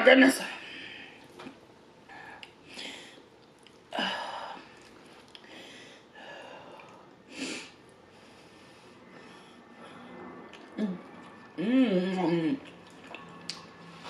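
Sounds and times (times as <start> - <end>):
chewing and mouth noises: 3.4 - 3.9, 4.7 - 5.5, 10.4 - 11.6, 12.2 - 13.8.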